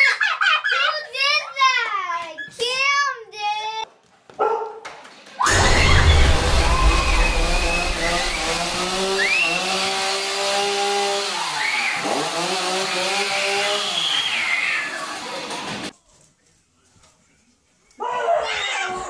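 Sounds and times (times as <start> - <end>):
chainsaw engine running: 5.5 - 15.9.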